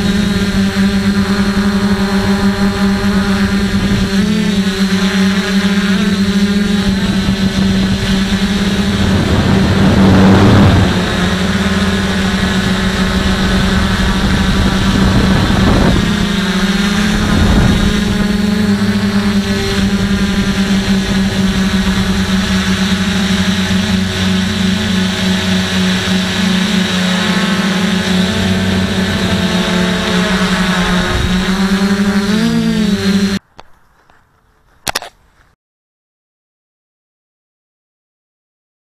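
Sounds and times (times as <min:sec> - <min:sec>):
drone motors humming: 0:00.0 - 0:35.1
rush of air noise: 0:06.9 - 0:19.1.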